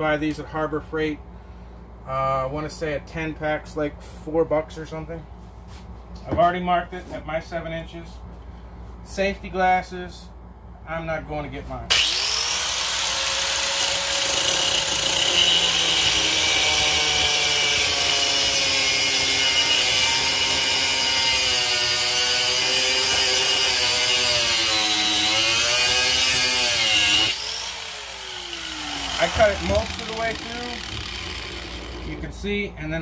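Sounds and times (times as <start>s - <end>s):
angle grinder cutting steel: 11.9s - 32.2s
angle grinder whining: 11.9s - 32.3s.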